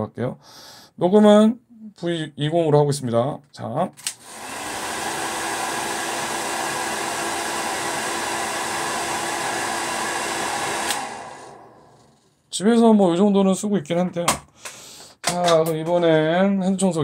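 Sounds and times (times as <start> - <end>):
hair dryer switch click: 4.0 - 4.9, 9.1 - 11.6
hair dryer running: 4.1 - 12.4.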